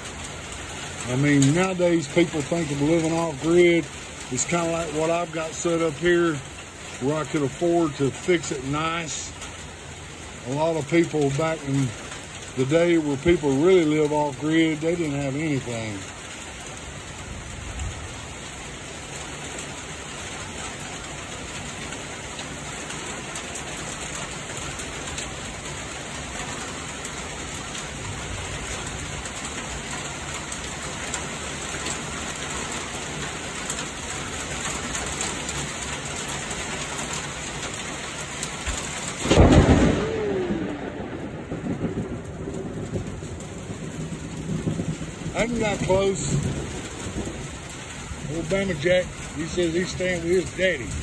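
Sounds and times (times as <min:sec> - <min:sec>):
rain pattering: 0:00.0 - 0:51.0
thunder clap: 0:38.7 - 0:51.0.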